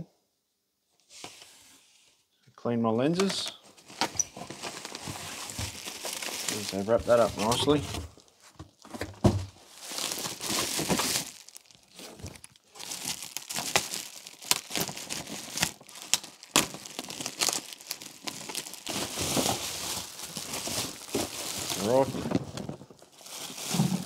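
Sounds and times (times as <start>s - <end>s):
bubble wrap crinkling: 3.8s - 24.0s
thump: 9.0s - 9.5s.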